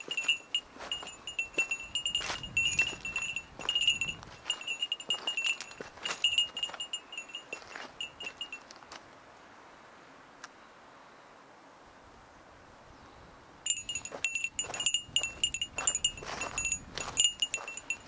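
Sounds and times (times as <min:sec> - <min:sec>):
small bell jingling: 0:00.0 - 0:08.7, 0:13.7 - 0:18.0
footsteps crunching on stones: 0:00.0 - 0:09.1, 0:13.8 - 0:18.0.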